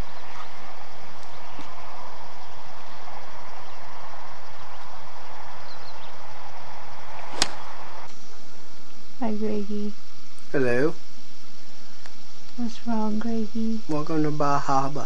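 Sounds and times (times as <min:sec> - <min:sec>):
outdoor background noise: 0:00.0 - 0:15.0
golf club striking ball: 0:07.3 - 0:07.7.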